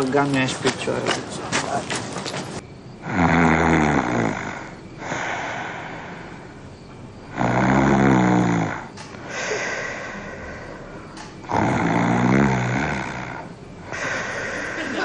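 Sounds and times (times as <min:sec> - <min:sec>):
man snoring: 0:03.0 - 0:06.4, 0:07.3 - 0:14.8
breathy out-breath: 0:04.5 - 0:06.6, 0:09.2 - 0:11.3, 0:13.8 - 0:15.0.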